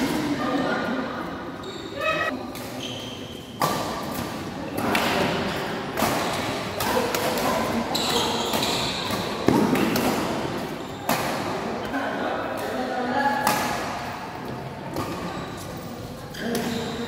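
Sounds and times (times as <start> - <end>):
shoe squeaks: 1.6 - 3.6, 7.9 - 9.1, 10.7 - 11.1, 16.4 - 17.0.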